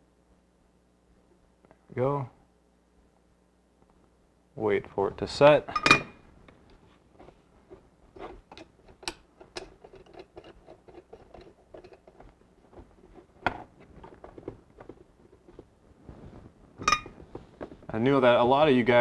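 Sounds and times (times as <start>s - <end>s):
hands rustling: 10.0s - 18.1s.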